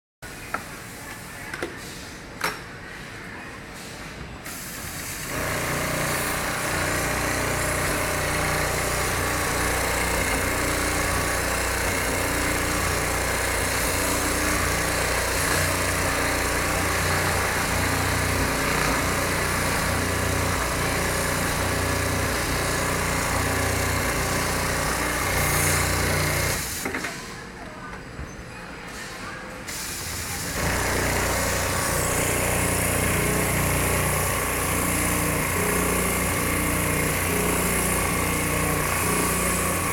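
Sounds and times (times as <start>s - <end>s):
sewing machine running: 5.2s - 26.7s, 30.4s - 39.9s.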